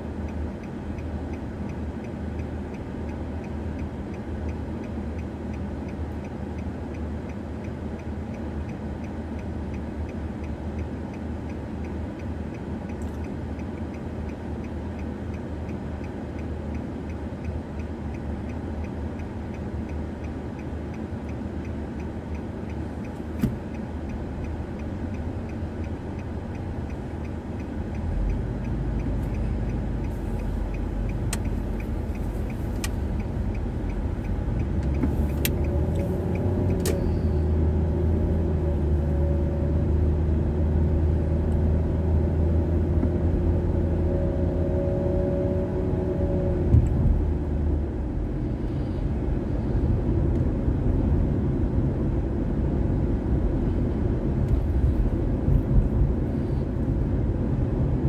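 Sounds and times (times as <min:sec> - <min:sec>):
car engine and road rumble: 0:00.0 - 0:58.0
steady ticking: 0:00.2 - 0:37.4.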